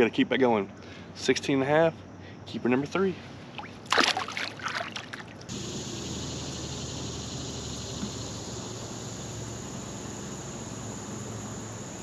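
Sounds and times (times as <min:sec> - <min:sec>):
high-pitched insect chorus: 0:05.5 - 0:12.0.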